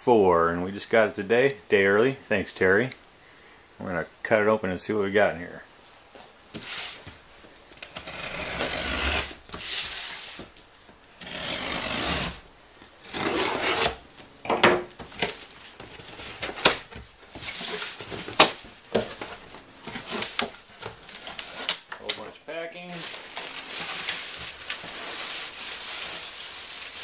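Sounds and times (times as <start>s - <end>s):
blade slicing packing tape: 7.8s - 10.4s, 11.2s - 12.4s, 13.1s - 14.0s
cardboard flaps cracking open: 14.9s - 22.3s
packing rustling: 15.0s - 27.0s.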